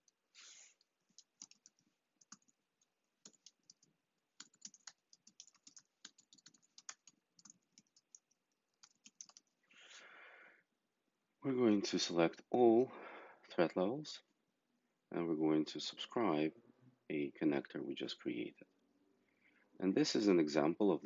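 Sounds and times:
computer keyboard clicking: 0:01.2 - 0:02.5, 0:03.2 - 0:09.6.

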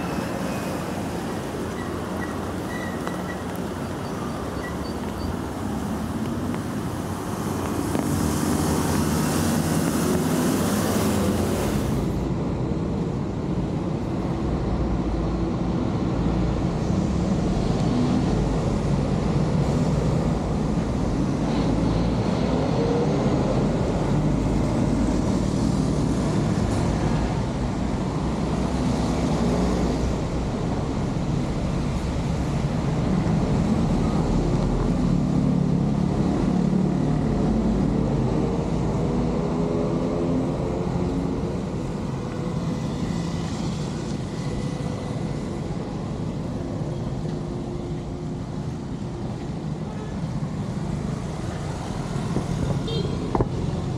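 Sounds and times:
traffic on a wet road: 0:00.0 - 0:53.9.

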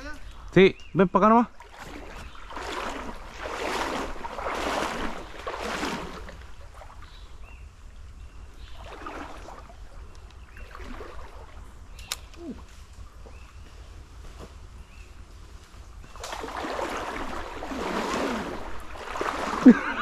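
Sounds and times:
flowing water: 0:01.1 - 0:12.0, 0:16.1 - 0:20.0
sharp click: 0:12.0 - 0:12.4.

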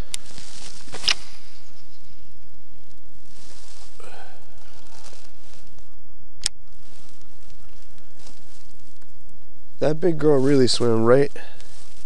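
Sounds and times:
sharp click: 0:06.4 - 0:06.6.

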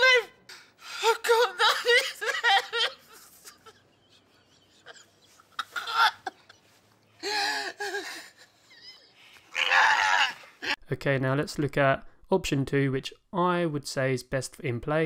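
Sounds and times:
man sobbing: 0:00.8 - 0:10.8.

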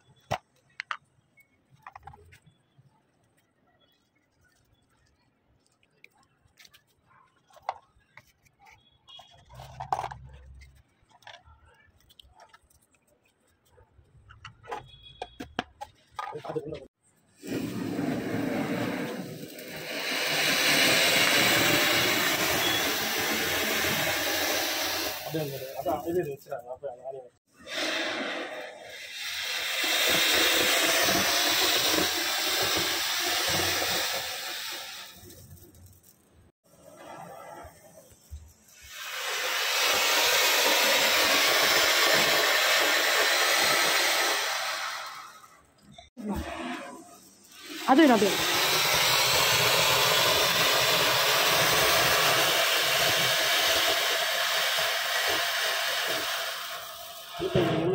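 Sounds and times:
firework fountains hissing: 0:17.3 - 0:57.9.

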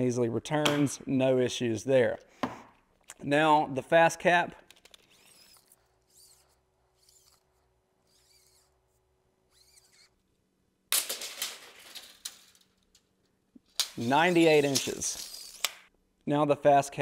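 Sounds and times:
tape measure blade sliding out: 0:13.8 - 0:15.9.

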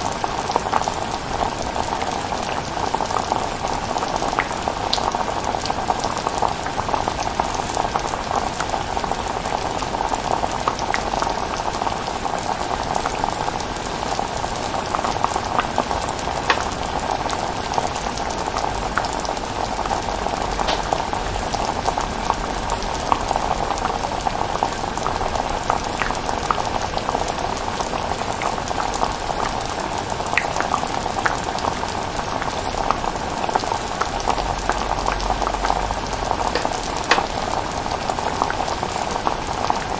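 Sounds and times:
pot bubbling with small pops: 0:15.0 - 0:17.3, 0:19.9 - 0:21.7, 0:35.2 - 0:37.7.

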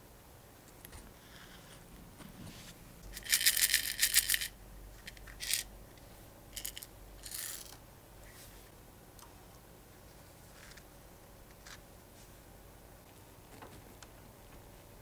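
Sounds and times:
metal parts rattling in plastic cup: 0:03.1 - 0:05.7, 0:06.6 - 0:07.8.

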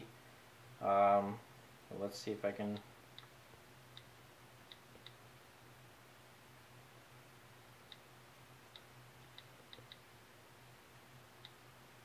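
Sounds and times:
steady low hum: 0:00.0 - 0:12.0
faint computer mouse clicks: 0:04.7 - 0:05.2, 0:07.9 - 0:08.1, 0:08.7 - 0:10.0, 0:11.4 - 0:11.6.

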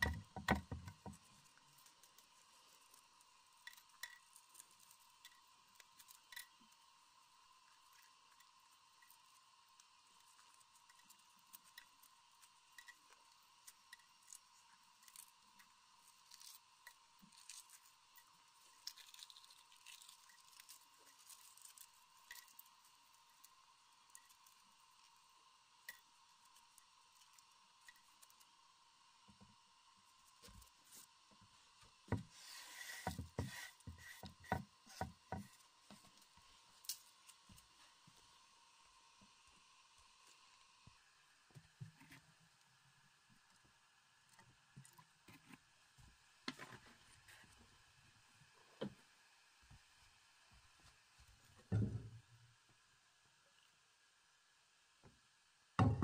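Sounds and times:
eggshells rustling and scraping: 0:00.1 - 0:28.5, 0:32.1 - 0:38.0
eggshell cracking and peeling: 0:07.8 - 0:23.6.

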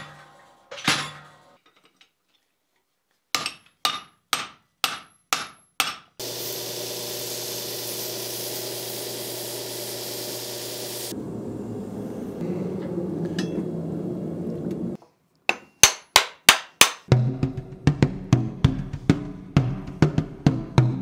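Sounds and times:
belt grinder motor hum: 0:06.2 - 0:11.1
hissing grinding on belt: 0:06.2 - 0:11.1.

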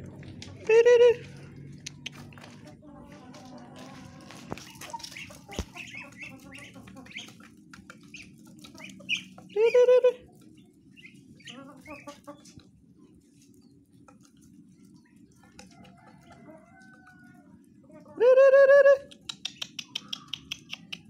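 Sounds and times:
chickens clucking: 0:00.0 - 0:21.0
chicken squawk: 0:11.4 - 0:12.6.

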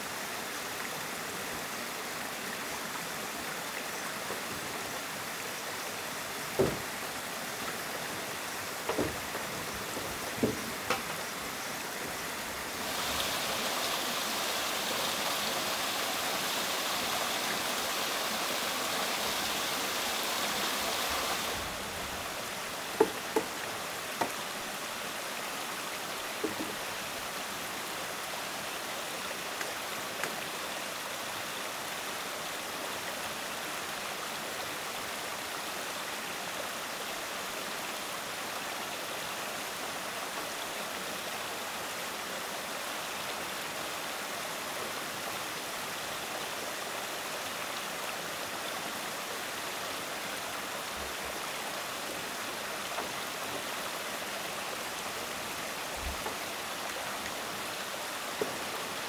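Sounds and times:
water rushing: 0:00.0 - 0:59.0
light knocks: 0:06.6 - 0:06.9, 0:08.8 - 0:11.2, 0:26.4 - 0:26.8.

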